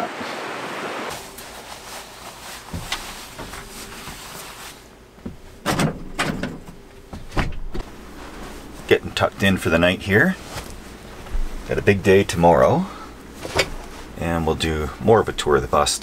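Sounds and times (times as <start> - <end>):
curtain swishing: 1.0 - 4.9
cloth rustling: 1.1 - 5.6, 6.8 - 9.1, 10.3 - 11.9, 12.9 - 14.2.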